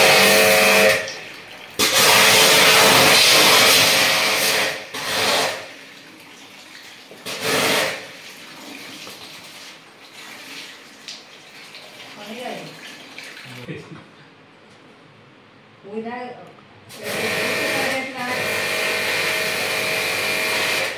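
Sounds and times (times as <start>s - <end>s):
spray gun blasting water: 0.0s - 1.1s, 1.8s - 5.8s, 7.2s - 8.2s, 16.9s - 20.9s.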